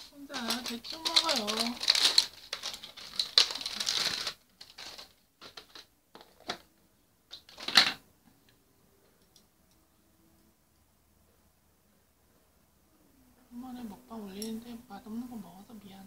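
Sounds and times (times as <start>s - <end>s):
plastic rustling: 0.0s - 8.0s.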